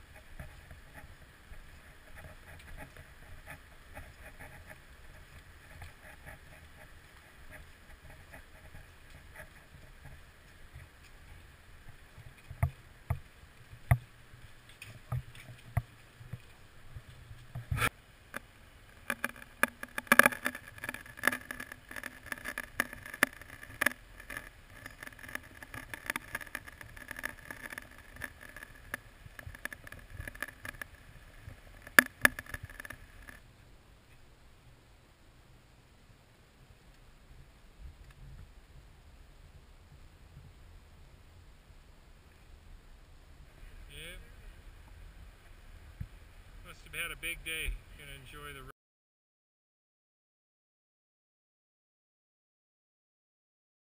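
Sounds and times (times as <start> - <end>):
sharp clicks and knocks: 11.9 - 13.2, 13.8 - 14.1, 14.7 - 33.4.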